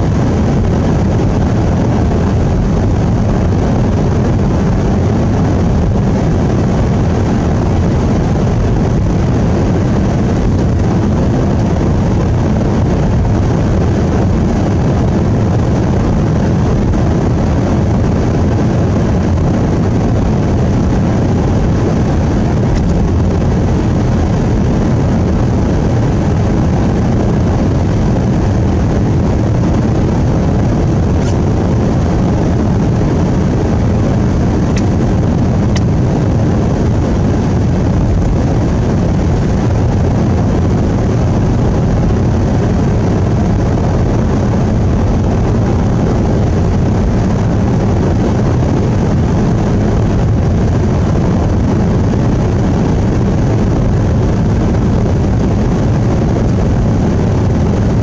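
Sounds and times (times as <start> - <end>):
vehicle engine and tyre noise: 0.0 - 58.0.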